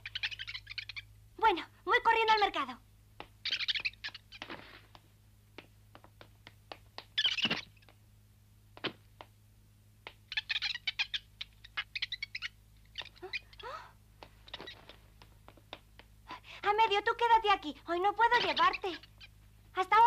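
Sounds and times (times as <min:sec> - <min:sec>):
cartoon monkey chattering: 0:00.0 - 0:01.1, 0:03.4 - 0:04.5, 0:07.0 - 0:07.9, 0:10.3 - 0:13.8, 0:18.0 - 0:20.0
light taps: 0:04.4 - 0:07.2, 0:14.2 - 0:16.2.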